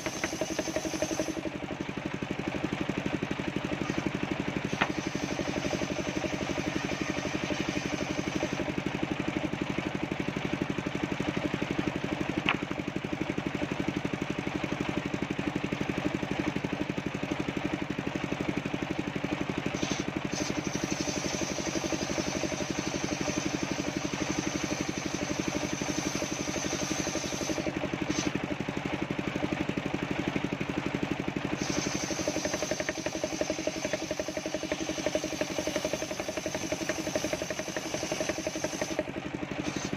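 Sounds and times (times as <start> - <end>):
saw blade hissing through wood: 0.0 - 1.6, 3.6 - 8.9, 19.6 - 28.5, 31.5 - 39.9
engine drone: 0.0 - 15.1, 18.4 - 39.9.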